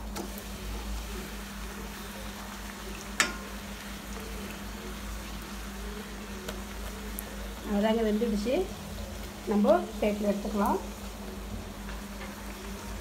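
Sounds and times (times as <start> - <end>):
food deep-frying in oil: 0.0 - 13.0.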